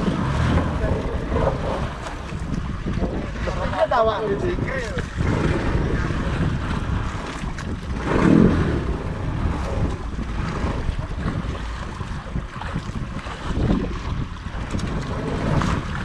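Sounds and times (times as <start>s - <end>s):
sea waves washing around boat: 0.0s - 16.0s
wind buffeting microphone: 0.0s - 16.0s.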